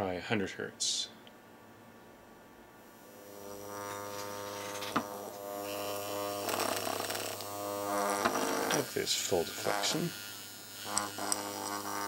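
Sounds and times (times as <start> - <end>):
actuator buzzing: 3.0 - 12.0.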